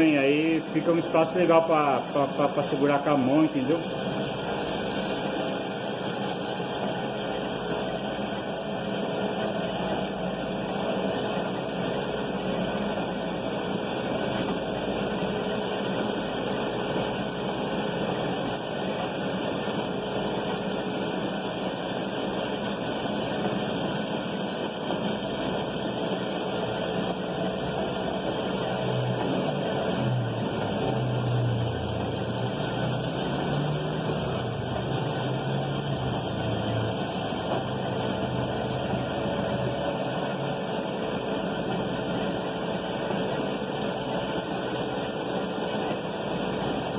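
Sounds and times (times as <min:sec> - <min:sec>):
electric motor humming: 0:27.6 - 0:43.2.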